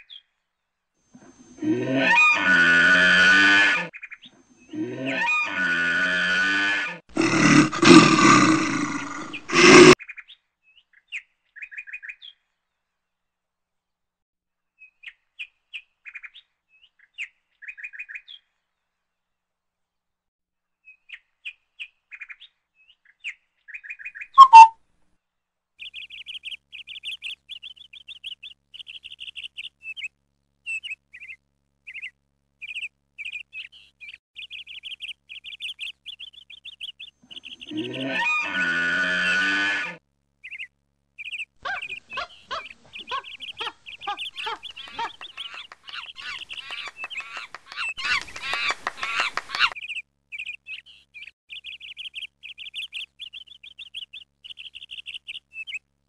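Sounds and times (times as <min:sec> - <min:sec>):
small birds chirping: 0:00.0 - 0:01.6, 0:14.8 - 0:18.6, 0:20.8 - 0:24.8, 0:25.8 - 0:38.2, 0:40.4 - 0:56.0
loud sharp bird call: 0:24.4 - 0:24.8, 0:41.6 - 0:49.8.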